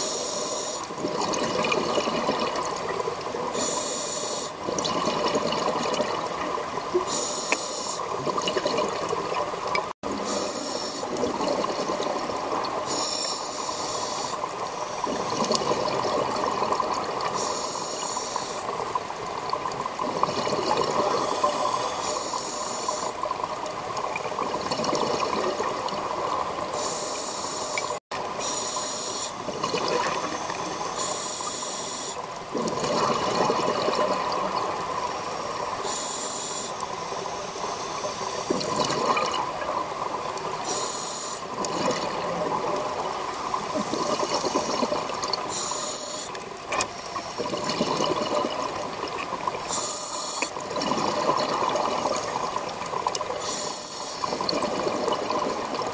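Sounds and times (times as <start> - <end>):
regulator inhalation hiss: 0.0 - 0.9, 3.5 - 4.6, 7.1 - 8.2, 10.2 - 11.1, 12.9 - 15.1, 17.3 - 18.7, 21.2 - 23.2, 26.8 - 29.4, 30.2 - 32.3, 35.2 - 38.6, 40.6 - 41.5, 45.5 - 46.4, 49.6 - 50.6, 53.4 - 54.3
exhaled bubbles gurgling: 0.0 - 55.9.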